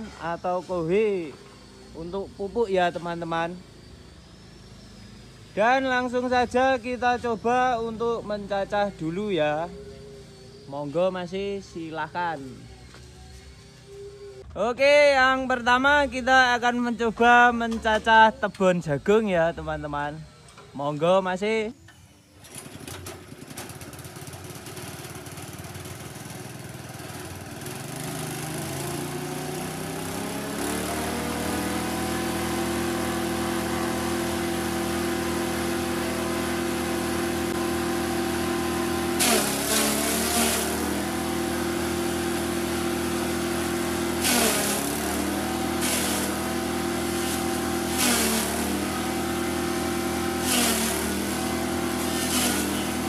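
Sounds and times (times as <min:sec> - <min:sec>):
small engine running: 0:00.0 - 0:53.0
chopper crunching corn stalks: 0:22.4 - 0:53.0.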